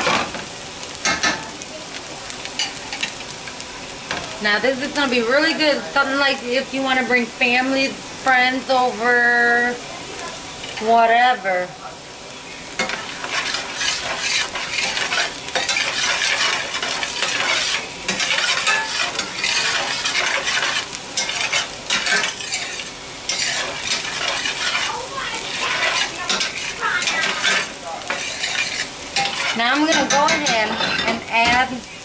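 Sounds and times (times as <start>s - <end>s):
onions sizzling in oil: 0.0s - 32.0s
spoon scraping a pan: 12.7s - 31.7s.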